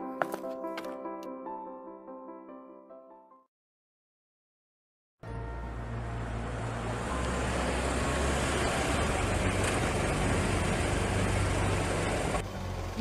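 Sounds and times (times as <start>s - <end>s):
car engine hum: 5.2s - 13.0s
tyre and road noise: 5.2s - 13.0s.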